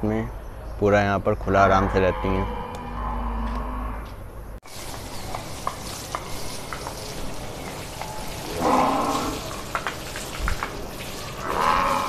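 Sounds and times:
hose water spraying and splashing: 4.6s - 12.0s
small splashes: 4.7s - 12.0s.

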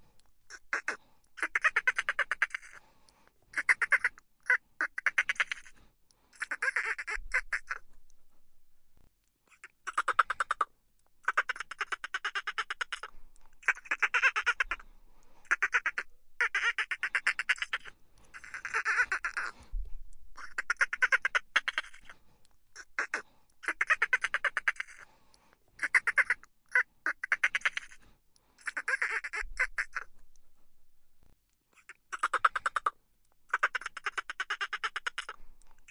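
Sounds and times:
dolphin clicking and squawking: 0.5s - 2.8s, 3.5s - 5.8s, 6.4s - 7.9s, 9.5s - 14.8s, 15.4s - 19.6s, 20.3s - 22.2s, 22.8s - 25.1s, 25.8s - 28.0s, 28.6s - 30.2s, 31.7s - 35.9s.

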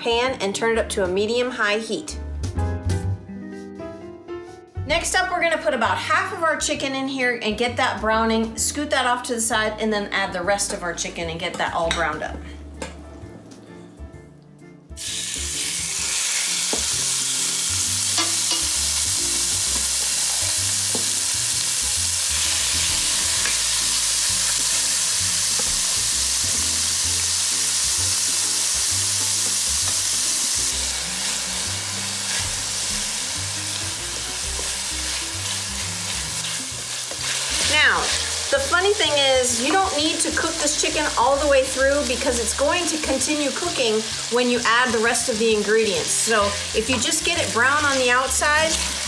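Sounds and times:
chicken sizzling in oil: 15.0s - 49.0s.

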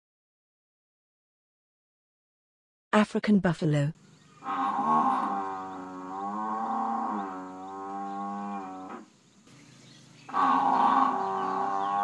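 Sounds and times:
buffalo lowing: 4.3s - 12.0s.

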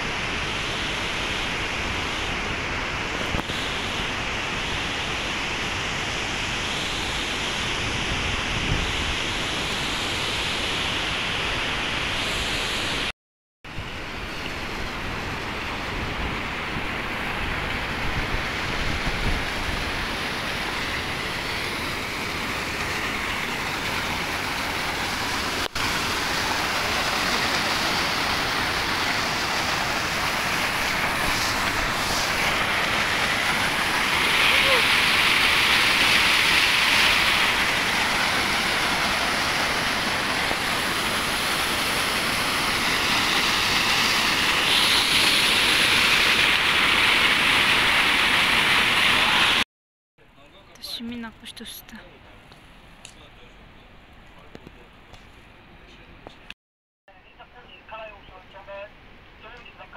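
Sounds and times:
white-water river rushing: 18.4s - 49.6s.

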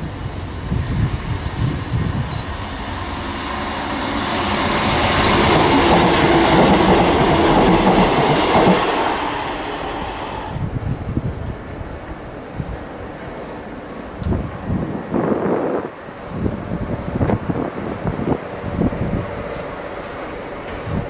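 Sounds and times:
train wheels rumbling and clacking: 0.0s - 11.9s, 16.9s - 21.0s.

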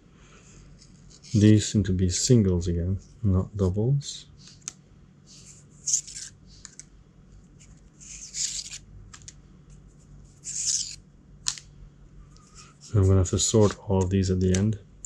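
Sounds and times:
cardboard cards swishing: 5.3s - 6.8s, 7.6s - 9.3s, 10.4s - 11.6s.

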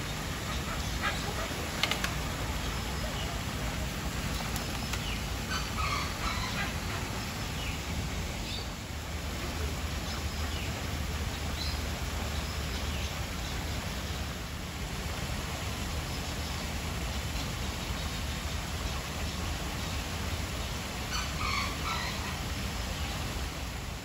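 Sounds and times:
bird calls: 0.0s - 7.8s, 21.1s - 22.4s
water rushing from waterfalls: 0.0s - 24.0s.

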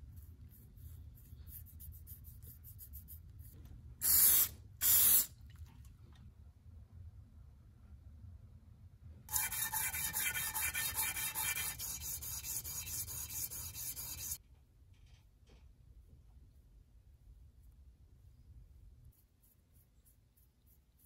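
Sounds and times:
metal nuts rubbed on sandpaper: 9.3s - 14.4s.

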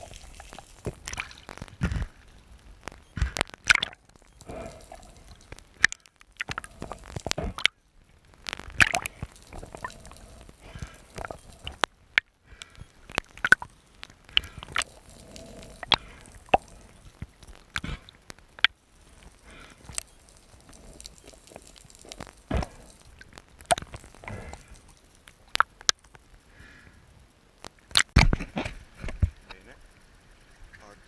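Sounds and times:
faint water noise: 0.0s - 31.0s.

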